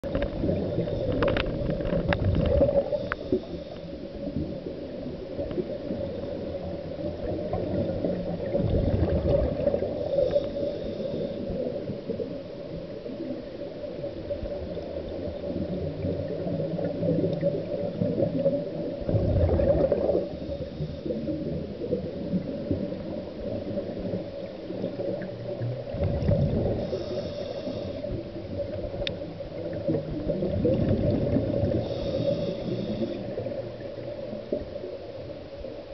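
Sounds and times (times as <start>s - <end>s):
exhaled bubbles rushing: 0.0s - 10.4s, 14.0s - 27.1s, 28.2s - 32.2s
muffled underwater hum: 0.0s - 35.9s.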